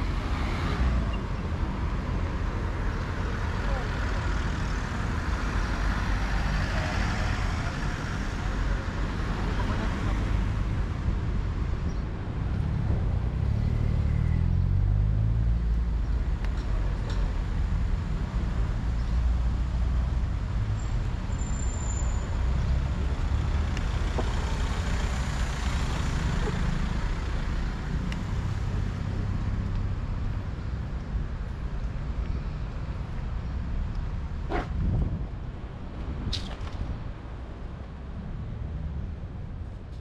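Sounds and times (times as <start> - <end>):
cars passing: 0.0 - 39.7
vehicle engine passing by: 12.6 - 15.7.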